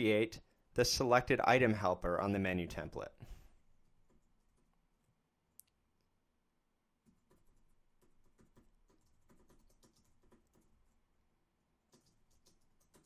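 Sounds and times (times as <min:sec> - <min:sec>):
keyboard typing: 0:03.9 - 0:04.8, 0:07.0 - 0:11.0, 0:11.9 - 0:13.0.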